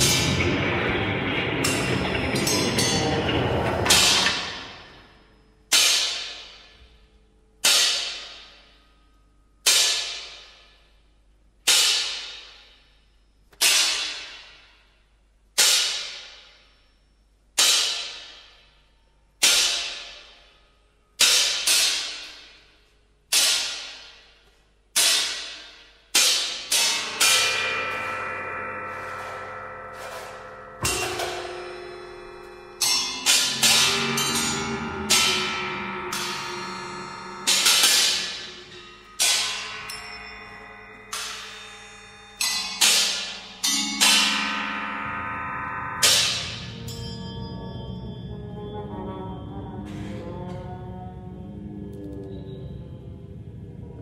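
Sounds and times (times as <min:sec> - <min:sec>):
struck bells and gongs: 0:00.0 - 0:07.4, 0:26.6 - 0:50.5
metal percussion strikes: 0:00.0 - 0:16.9, 0:17.5 - 0:50.2
sustained ringing tone: 0:27.0 - 0:54.0.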